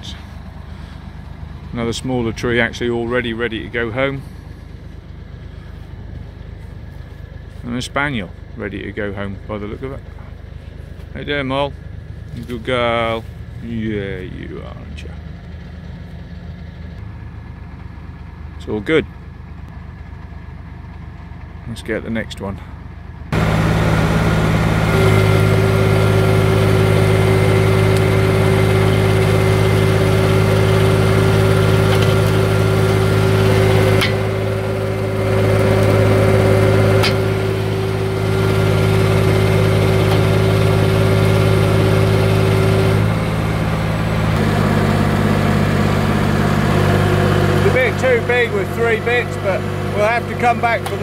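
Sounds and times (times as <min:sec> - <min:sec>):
tractor engine running: 0:00.0 - 0:51.0
winch high whine: 0:23.3 - 0:51.0.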